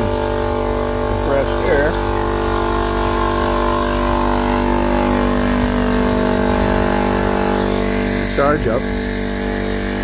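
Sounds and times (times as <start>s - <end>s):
electric air compressor running: 0.0s - 10.0s.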